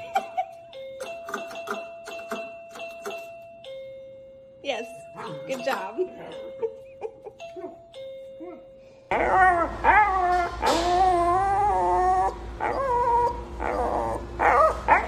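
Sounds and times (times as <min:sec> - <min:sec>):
small dog whining and howling: 0:08.4 - 0:15.0.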